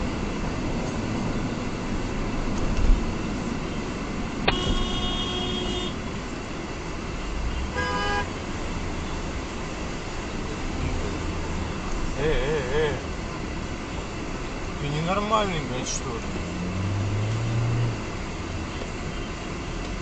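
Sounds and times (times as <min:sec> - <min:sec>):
road and engine noise inside car: 0:00.0 - 0:20.0
car horn honking: 0:04.4 - 0:06.0, 0:07.5 - 0:08.4.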